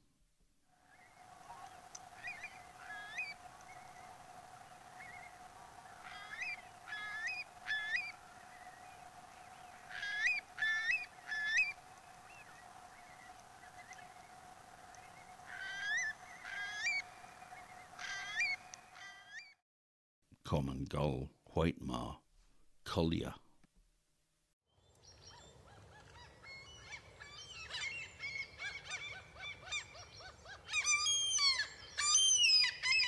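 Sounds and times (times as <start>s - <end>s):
faint steady hum: 0.0s - 19.0s
curlew calling: 0.8s - 19.6s, 25.0s - 33.0s.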